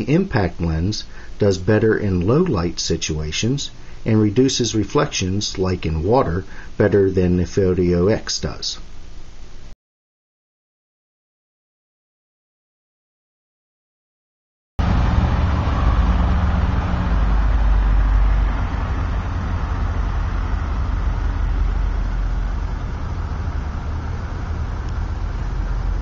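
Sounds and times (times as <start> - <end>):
street traffic engine rumble: 14.8 - 26.0.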